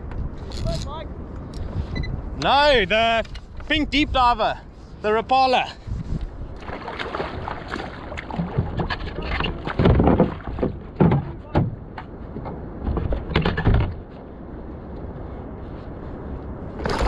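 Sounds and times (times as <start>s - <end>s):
wind on microphone: 0.0s - 17.0s
water splashes: 6.5s - 11.5s
water slapping against kayak hull: 6.5s - 12.1s, 16.8s - 17.0s
knocks on hull: 6.6s - 14.0s.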